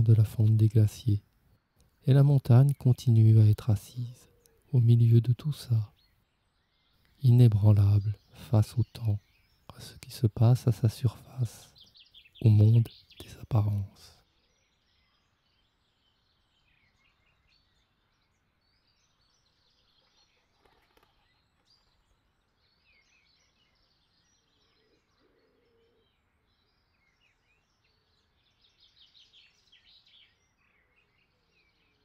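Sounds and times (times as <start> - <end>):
faint bird chirps: 0.0 - 32.0.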